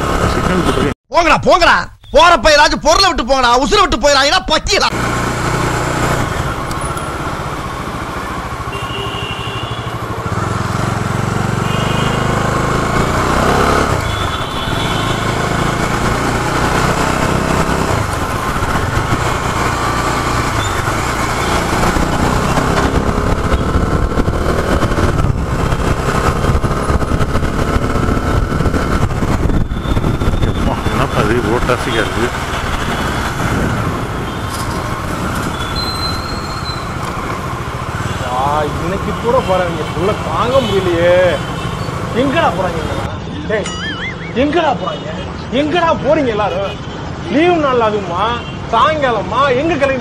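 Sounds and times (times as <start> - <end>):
motorcycle engine running: 5.0 - 39.6
short high beeps: 43.6 - 44.5.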